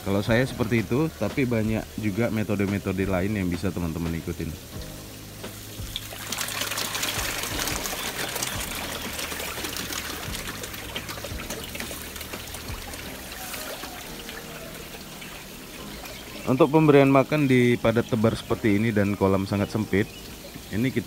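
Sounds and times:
water trickling: 0:00.0 - 0:21.0
fish splashing at surface: 0:05.4 - 0:16.5.

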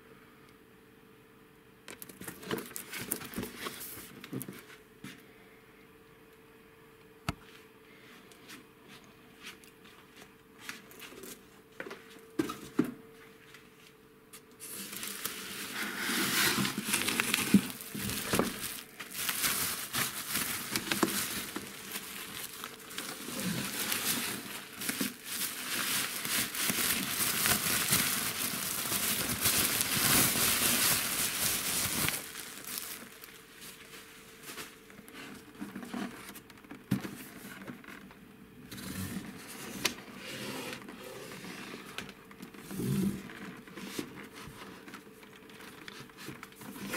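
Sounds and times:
bubble wrap crinkling: 0:01.9 - 0:04.7, 0:14.6 - 0:36.8, 0:42.0 - 0:46.9.

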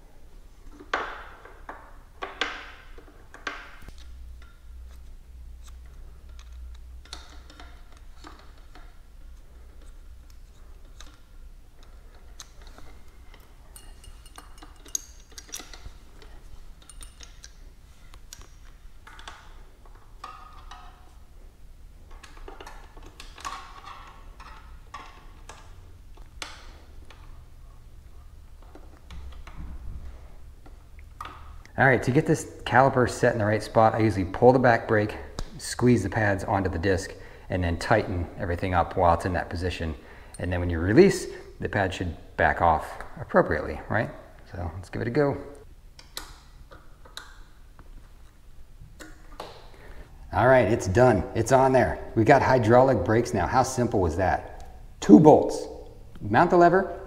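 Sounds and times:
small metallic clicks and clinks: 0:09.8 - 0:21.1.

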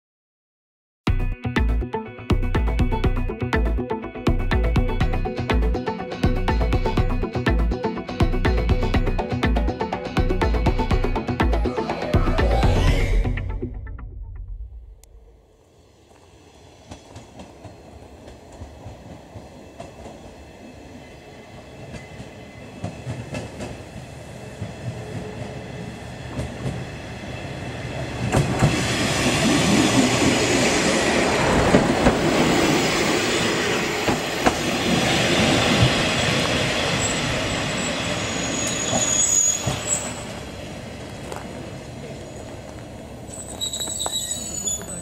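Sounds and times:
diesel railcar engine: 0:04.3 - 0:45.0
train wheels on rails: 0:15.4 - 0:45.0
thin high wheel squeal: 0:36.8 - 0:40.3, 0:43.2 - 0:45.0.

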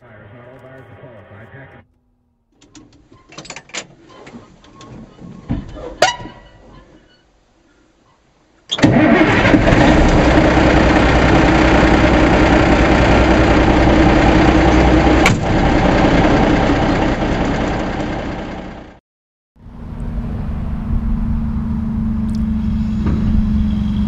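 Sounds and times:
truck engine running: 0:08.9 - 0:19.0, 0:19.6 - 0:24.0.

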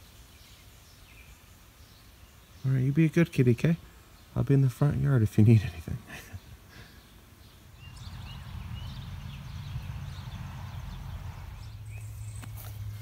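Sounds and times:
steady low rumble: 0:07.8 - 0:13.0.

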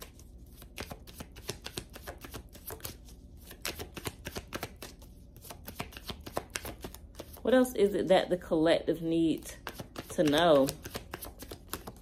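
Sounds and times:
cards being shuffled: 0:00.0 - 0:07.4, 0:09.6 - 0:12.0.

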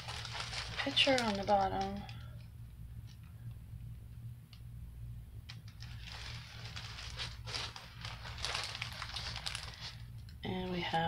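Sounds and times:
plastic sheet rustling and crinkling: 0:00.0 - 0:02.4, 0:05.7 - 0:11.0.

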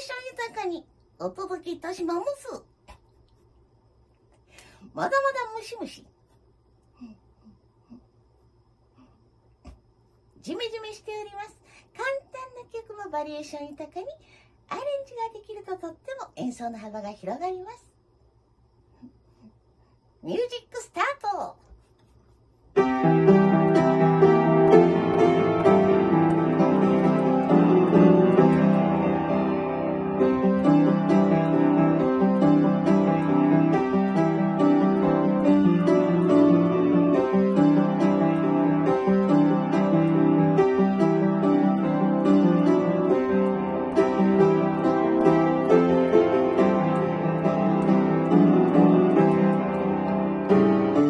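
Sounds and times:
upright piano playing: 0:22.8 - 0:51.0.

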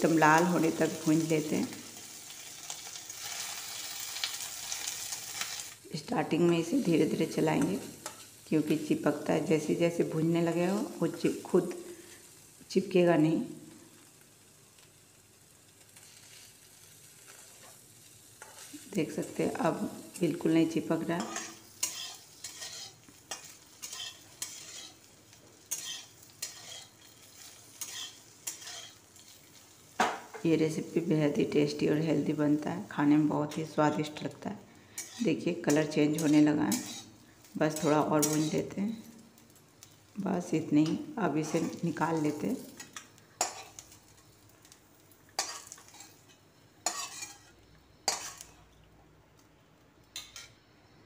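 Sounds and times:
light sizzle of frying: 0:00.0 - 0:51.0
metal spatula scraping metal pan: 0:21.2 - 0:25.1, 0:25.7 - 0:29.4, 0:34.9 - 0:38.6, 0:41.4 - 0:43.9, 0:45.4 - 0:48.5.

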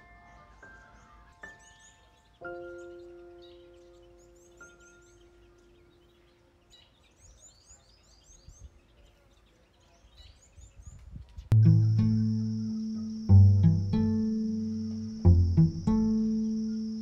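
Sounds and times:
faint outdoor background noise: 0:00.0 - 0:17.0
small birds chirping: 0:00.0 - 0:17.0
chime-like music note: 0:11.5 - 0:16.9
plucked-string music: 0:11.5 - 0:17.0.

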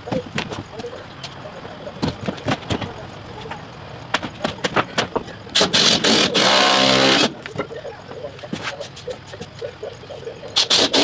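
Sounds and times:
boards and tools clattering: 0:02.0 - 0:07.7
power driver driving screw into wood: 0:05.6 - 0:07.3.

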